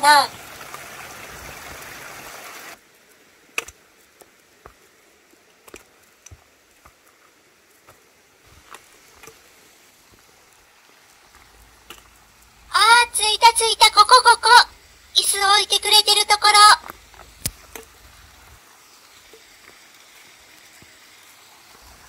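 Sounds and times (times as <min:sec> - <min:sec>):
stream trickling over rocks: 0:00.0 - 0:12.9, 0:14.2 - 0:15.6, 0:16.4 - 0:22.0
footsteps on rocky trail: 0:04.2 - 0:04.9, 0:05.6 - 0:12.6.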